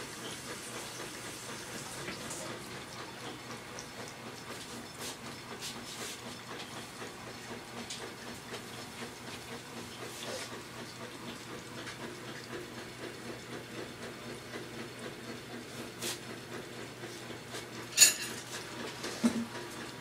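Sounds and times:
kitchenware clattering: 18.0 - 18.4.

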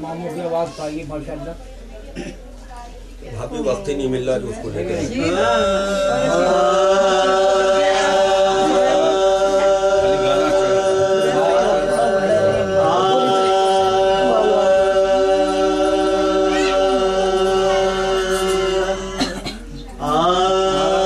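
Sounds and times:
men chanting elegy: 4.8 - 19.2
held drone note: 5.0 - 19.4.

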